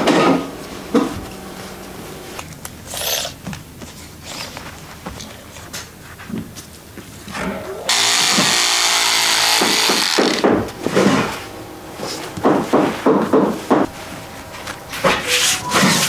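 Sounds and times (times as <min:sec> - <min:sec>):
electric cloth cutter motor whine: 0:07.9 - 0:10.5.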